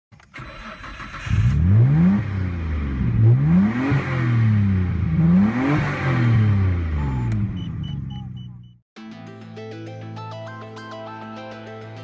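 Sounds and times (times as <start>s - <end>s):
car engine accelerating hard: 0.6s - 8.1s.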